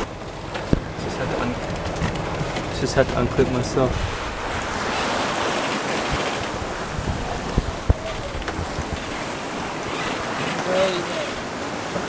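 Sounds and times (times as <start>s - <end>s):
wind buffeting microphone: 0.0s - 10.7s
sea rushing past hull: 0.0s - 12.0s.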